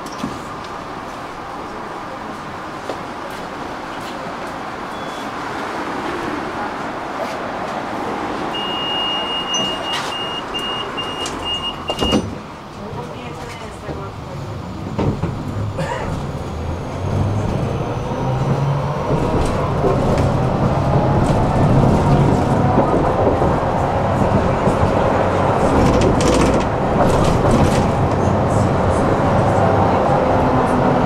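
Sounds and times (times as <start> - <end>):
wheels rumbling on rails: 0.0 - 31.0
rail joint clicks: 8.9 - 14.1, 18.4 - 29.3.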